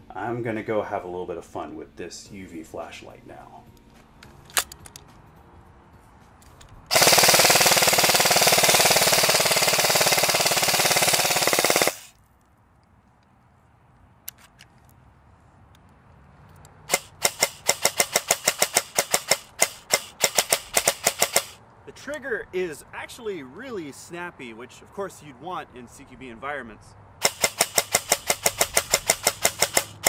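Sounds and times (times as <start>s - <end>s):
airsoft gun firing: 6.9s - 12.1s, 16.9s - 21.6s, 27.2s - 30.0s.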